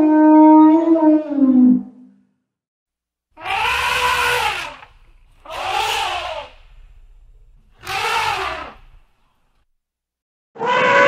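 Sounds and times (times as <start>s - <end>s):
elephant calling: 3.4s - 9.6s
low hum: 3.4s - 9.7s.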